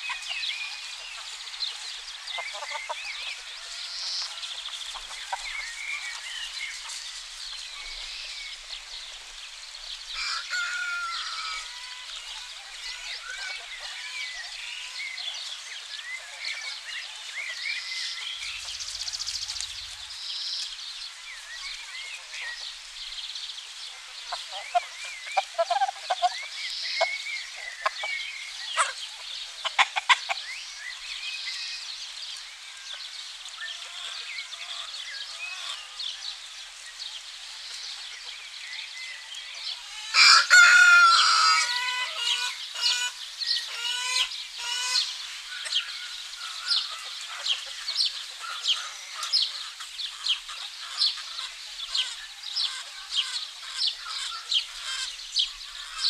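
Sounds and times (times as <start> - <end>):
hens clucking: 0.0 - 6.2, 24.0 - 30.5
small birds chirping: 0.0 - 40.1, 41.1 - 56.0
rooster crowing: 10.2 - 12.0, 40.0 - 42.4.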